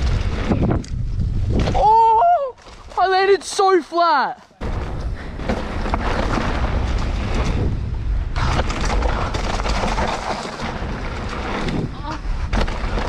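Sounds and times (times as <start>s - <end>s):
wind buffeting microphone: 0.0s - 3.0s, 4.6s - 13.0s
bike tyres on dirt trail: 0.0s - 13.0s
bike knocks and rattles: 4.6s - 13.0s.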